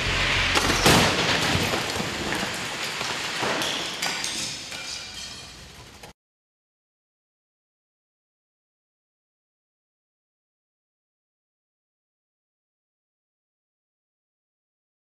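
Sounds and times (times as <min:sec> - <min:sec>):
car crash metal crunch: 0:00.0 - 0:04.7
debris and glass clattering: 0:00.5 - 0:06.1.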